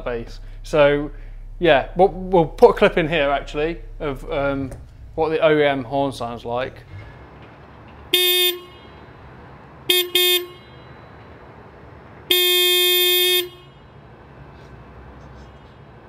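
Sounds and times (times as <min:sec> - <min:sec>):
car horn beeps: 0:08.1 - 0:11.6, 0:12.2 - 0:14.0.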